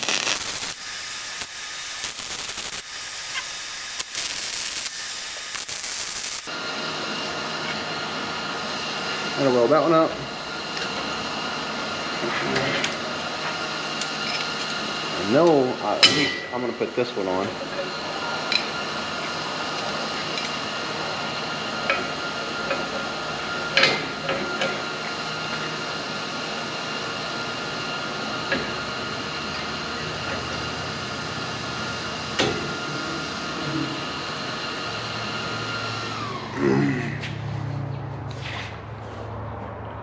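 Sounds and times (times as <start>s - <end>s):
small electric motor whining: 0.0s - 6.6s.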